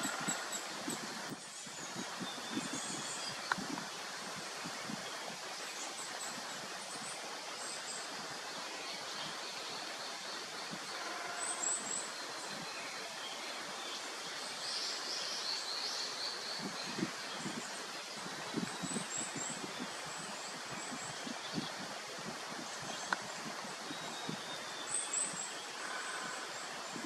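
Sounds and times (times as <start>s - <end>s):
outdoor background noise: 0.0s - 27.0s.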